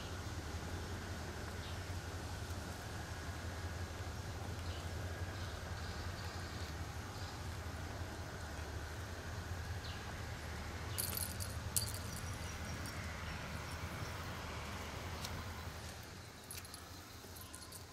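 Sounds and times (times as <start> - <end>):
faint insects chirping: 4.1 - 17.9.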